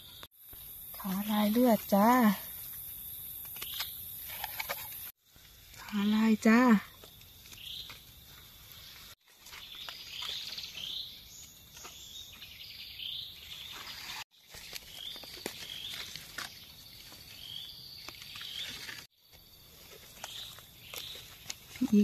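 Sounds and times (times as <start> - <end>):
birds chirping: 5.8 - 19.1
mushrooms cut in leaf litter: 13.7 - 19.1, 19.7 - 22.0.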